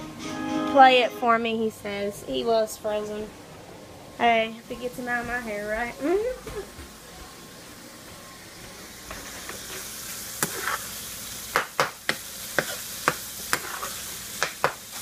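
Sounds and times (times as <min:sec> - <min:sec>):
meat sizzling in a frying pan: 0:08.8 - 0:15.0.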